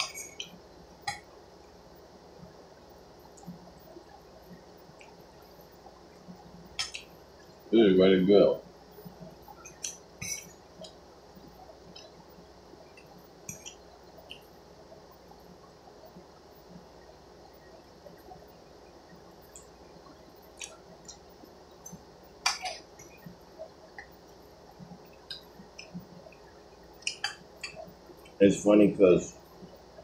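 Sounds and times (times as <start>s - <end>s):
soft wet chewing: 3.3s - 7.6s, 9.2s - 12.2s, 19.5s - 28.4s.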